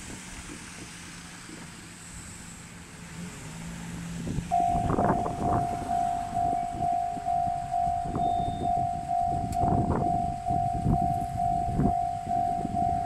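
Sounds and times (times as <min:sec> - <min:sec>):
low thumps: 0:04.4 - 0:13.0
level crossing warning bell: 0:04.5 - 0:13.0
low steady hum: 0:04.5 - 0:13.0.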